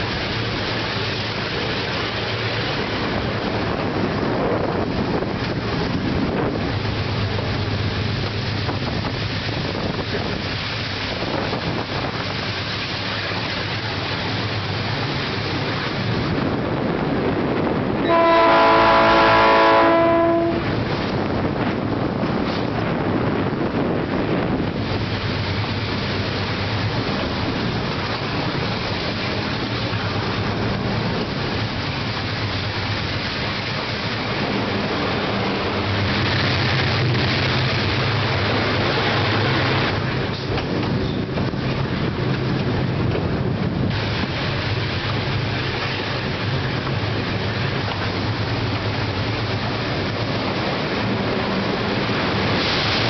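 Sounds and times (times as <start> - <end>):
diesel train engine drone: 0.0 - 53.0
wheels rolling on rails: 20.7 - 53.0.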